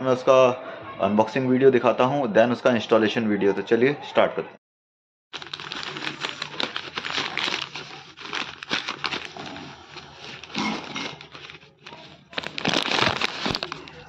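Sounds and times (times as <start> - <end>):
package rustling and crinkling: 5.4 - 14.0.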